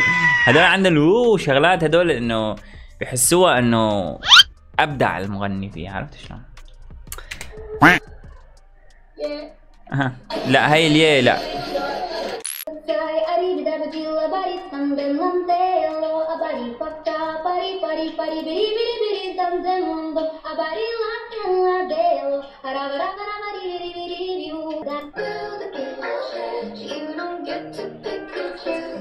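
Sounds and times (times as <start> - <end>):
woman singing: 12.0 - 29.0.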